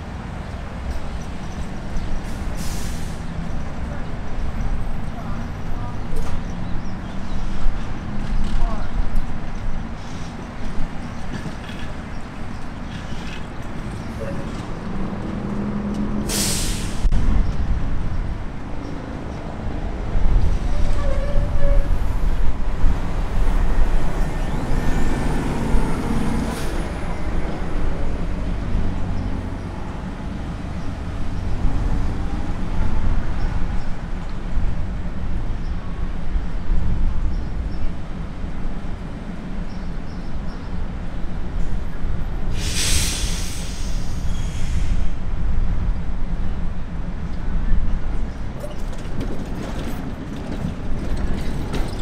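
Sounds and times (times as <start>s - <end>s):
streetcar rolling on track: 0.0s - 52.0s.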